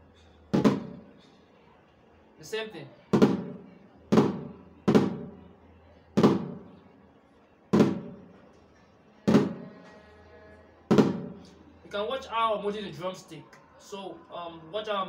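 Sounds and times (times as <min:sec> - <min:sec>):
snare drum flams: 0:00.5 - 0:01.0, 0:03.2 - 0:03.5, 0:04.1 - 0:05.3, 0:06.2 - 0:06.6, 0:07.8 - 0:08.2, 0:09.3 - 0:09.6, 0:10.9 - 0:11.4.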